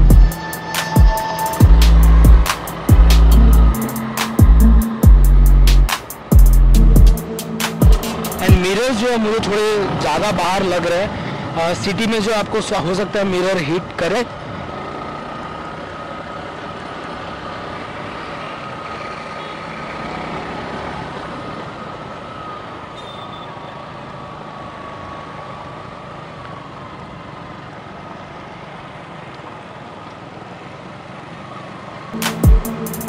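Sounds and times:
loud music with heavy beat: 0.0 - 8.8, 32.2 - 33.0
motorcycle engine cruising: 0.0 - 13.2
road and wind noise: 0.0 - 33.0.

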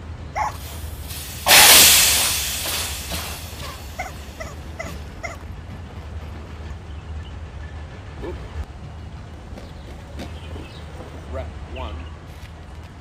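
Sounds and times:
air rushing from punctured tyre: 0.4 - 5.2.

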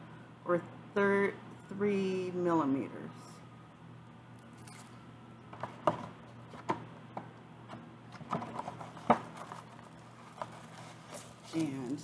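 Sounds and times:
low steady hum: 0.0 - 12.0
cardboard box being handled: 8.4 - 12.0.

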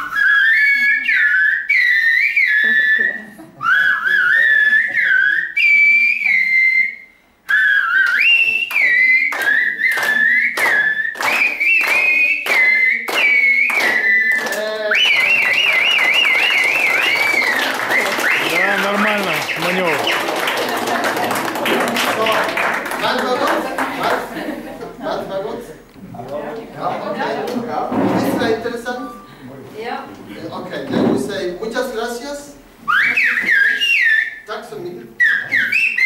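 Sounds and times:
women whistling piercing tones: 0.0 - 18.7, 32.9 - 34.4, 35.2 - 36.0
fast warbling whistled trill: 9.6 - 20.3, 32.9 - 34.5, 35.2 - 36.0.

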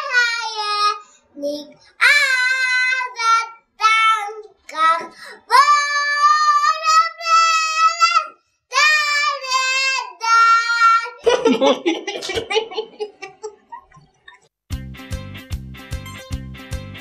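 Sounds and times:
boy singing unaccompanied: 0.0 - 11.2.

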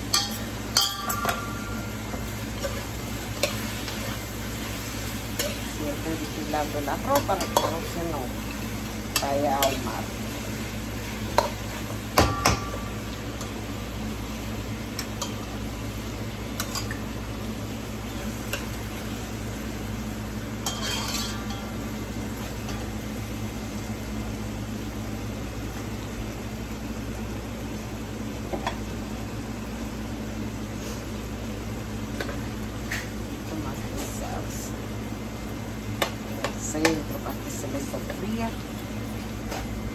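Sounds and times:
food sizzling in a skillet: 0.0 - 39.9
utensil scraping a pan: 20.7 - 21.6.

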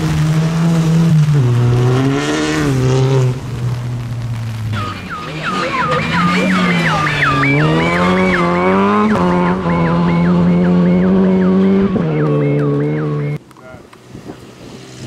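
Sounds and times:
car engine revving: 0.0 - 15.0
electronic siren warbling: 4.7 - 13.4.

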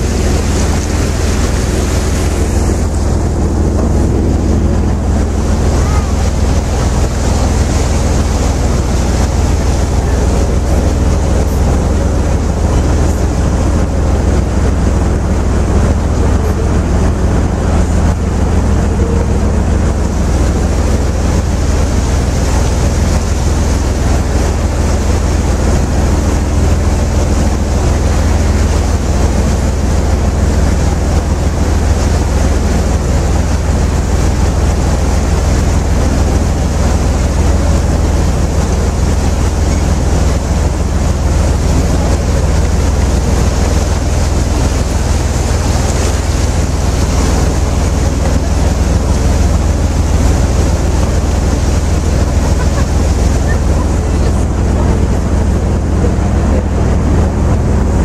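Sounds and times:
boat engine drone: 0.0 - 58.0
water rushing along hull: 0.0 - 58.0
wind on microphone: 0.0 - 58.0.

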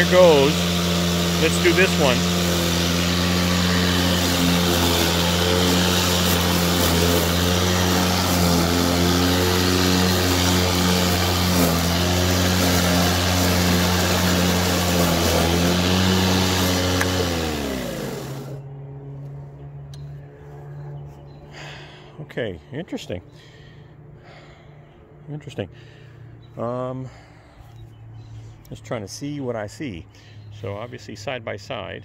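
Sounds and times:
blades spinning down: 0.0 - 18.6
electric mower humming: 0.0 - 22.0.

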